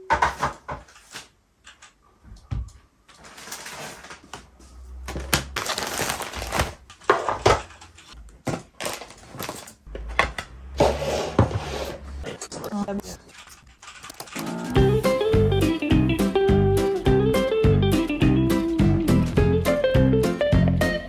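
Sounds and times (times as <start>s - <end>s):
plastic bags crinkling: 3.1s - 4.4s, 5.1s - 7.8s, 8.4s - 9.9s.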